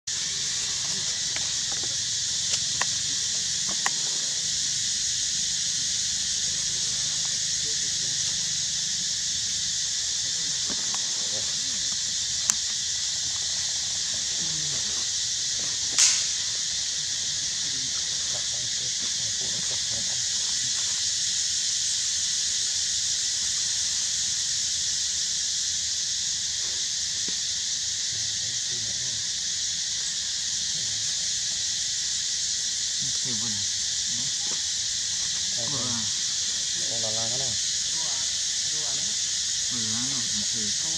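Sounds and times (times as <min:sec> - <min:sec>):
insect chorus hissing: 0:00.0 - 0:40.9
sharp click: 0:15.9 - 0:16.4.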